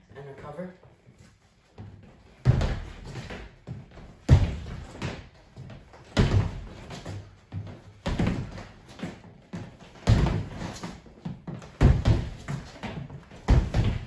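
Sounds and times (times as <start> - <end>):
loud foot stamps on wooden floor: 2.4 - 8.8, 9.5 - 14.0.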